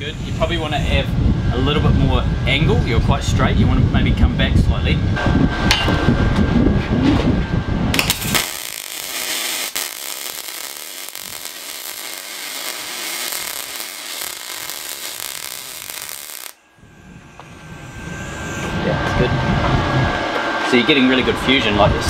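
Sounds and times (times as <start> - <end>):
low rumble: 0.0 - 9.2, 13.4 - 22.0
welding arc hissing: 7.9 - 18.7.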